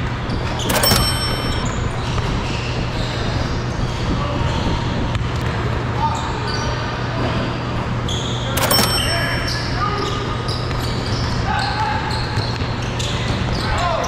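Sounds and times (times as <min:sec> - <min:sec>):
shoe squeaks: 0:08.0 - 0:13.9.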